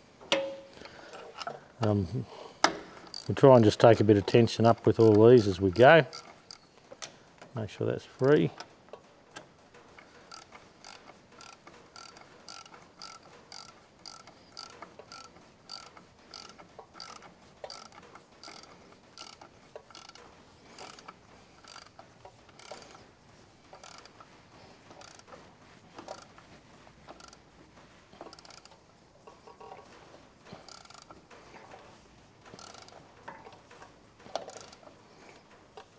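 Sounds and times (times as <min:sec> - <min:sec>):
ratchet clicking: 0:02.6 - 0:06.7, 0:10.0 - 0:23.1, 0:23.7 - 0:25.4, 0:26.0 - 0:26.4, 0:27.1 - 0:27.4, 0:28.2 - 0:28.8, 0:30.5 - 0:35.0.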